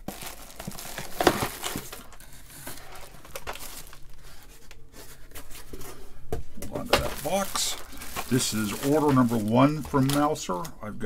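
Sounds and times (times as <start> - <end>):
plastic packaging crinkling: 0.0 - 5.7, 6.7 - 10.8.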